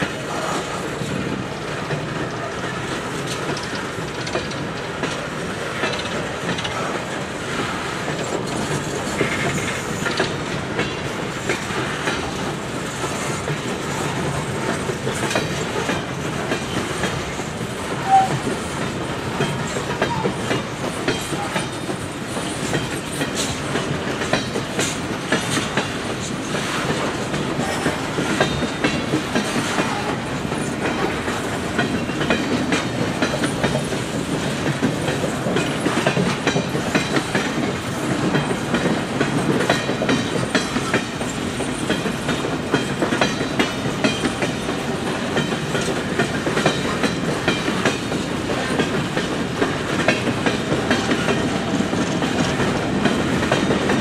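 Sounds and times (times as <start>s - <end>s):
train wheels rumbling on rail: 0.0s - 54.0s
wheel clicks and clacks: 3.2s - 7.0s.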